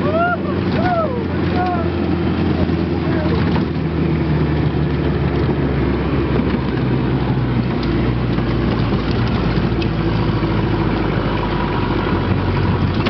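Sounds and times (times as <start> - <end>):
engine running low hum: 0.0 - 13.0.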